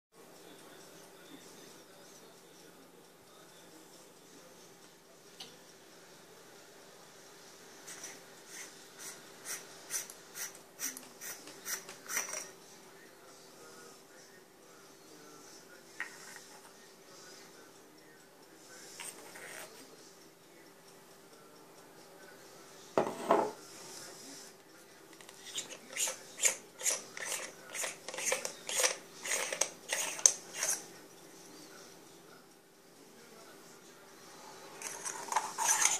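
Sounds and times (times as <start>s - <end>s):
flashlight threads rasping: 25.2s - 30.8s, 34.8s - 35.9s.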